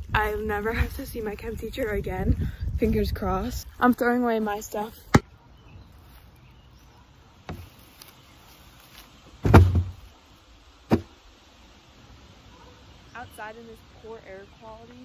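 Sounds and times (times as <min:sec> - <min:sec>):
bag thudding into plastic bin: 0:09.4 - 0:10.0
knocks against plastic bin: 0:09.4 - 0:10.0, 0:10.9 - 0:11.1.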